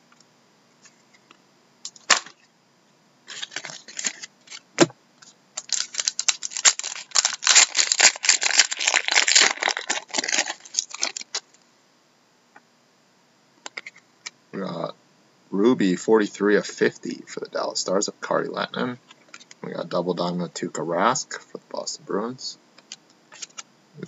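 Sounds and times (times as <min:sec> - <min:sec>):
foil pack tearing snap: 0:05.6 - 0:11.4
foil wrapper crackling: 0:05.6 - 0:11.5.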